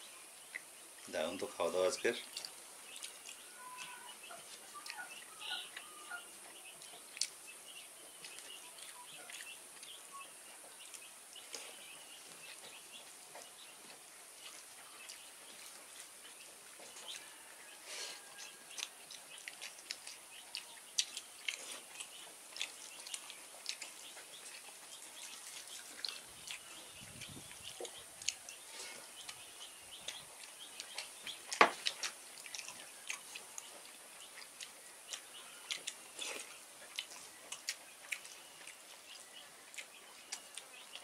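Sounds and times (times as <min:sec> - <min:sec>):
chewing: 0:00.4 - 0:01.1, 0:02.0 - 0:41.0
lip smacks: 0:06.6 - 0:07.4, 0:18.2 - 0:41.0.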